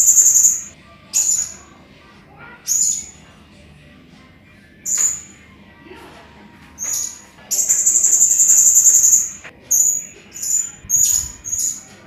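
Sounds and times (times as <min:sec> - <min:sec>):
parrot high-pitched calls: 0:00.0 - 0:01.6, 0:06.8 - 0:11.9.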